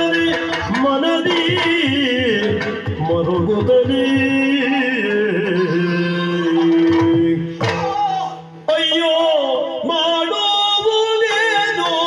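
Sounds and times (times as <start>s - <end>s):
drum strokes: 0.0s - 5.5s, 6.6s - 8.6s
man singing: 0.0s - 12.0s.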